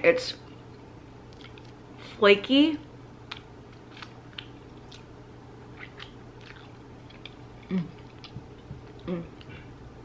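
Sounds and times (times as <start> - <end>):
pastry crackling while chewing: 1.3 - 1.8, 3.2 - 9.6
person humming briefly: 7.7 - 8.0.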